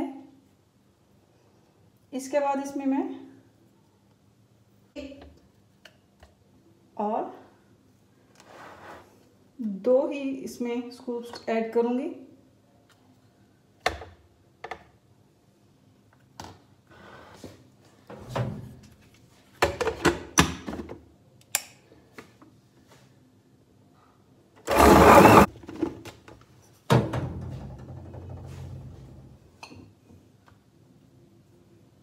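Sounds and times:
electric blender running: 0:24.6 - 0:25.5.

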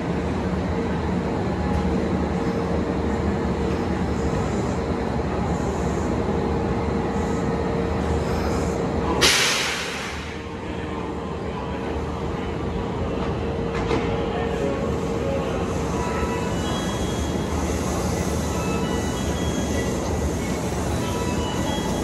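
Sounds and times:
train rumble and hum: 0:00.0 - 0:22.0.

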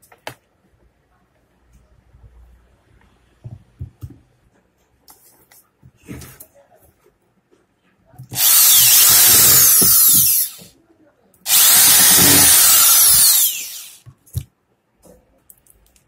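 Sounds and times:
power drill driving screws: 0:08.4 - 0:10.7, 0:11.5 - 0:14.0.

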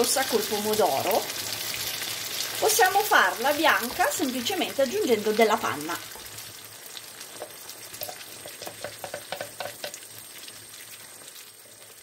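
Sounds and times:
sauce sizzling in a frying pan: 0:00.0 - 0:12.0
wooden spoon stirring: 0:07.4 - 0:10.0.

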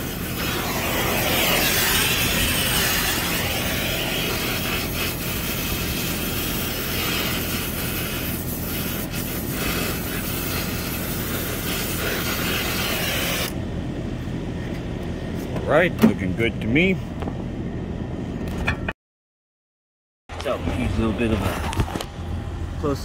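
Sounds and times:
torch flame hissing: 0:00.0 - 0:13.6
steady low hum: 0:00.0 - 0:18.9, 0:20.4 - 0:23.0.

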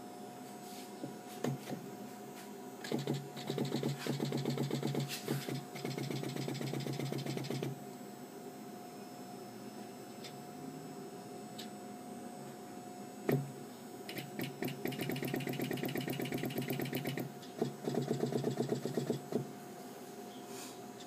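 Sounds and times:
player piano pneumatics clicking: 0:02.8 - 0:07.7.

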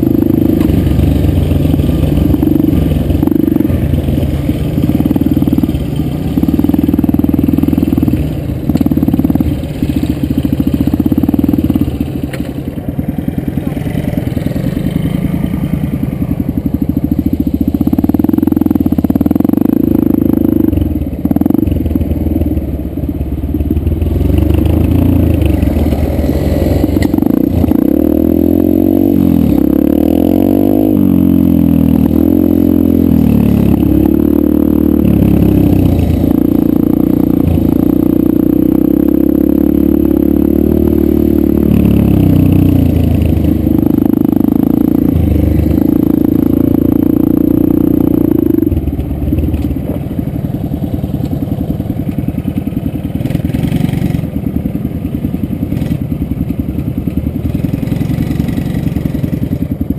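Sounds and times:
dirt bike engine revving: 0:00.0 - 0:12.4, 0:23.6 - 0:49.7, 0:53.1 - 0:54.4, 0:57.4 - 0:59.5.

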